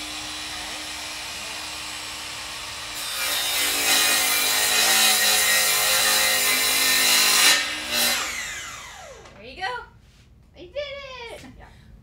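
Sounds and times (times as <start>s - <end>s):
miter saw cutting wood: 0.0s - 9.3s.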